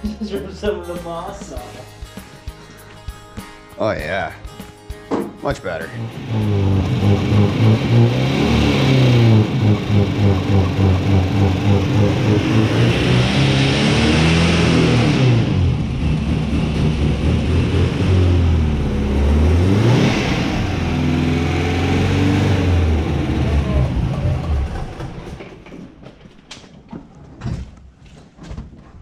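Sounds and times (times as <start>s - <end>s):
car engine revving: 5.9s - 25.4s.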